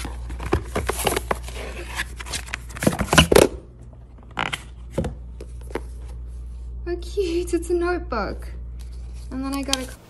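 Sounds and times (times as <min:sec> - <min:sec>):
paper and cardboard rustling: 0:00.0 - 0:03.3.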